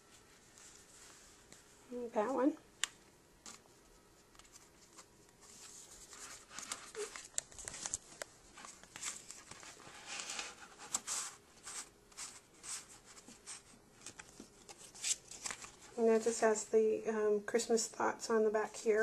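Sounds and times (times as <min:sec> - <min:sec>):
paper pages rustling: 0:03.4 - 0:16.3.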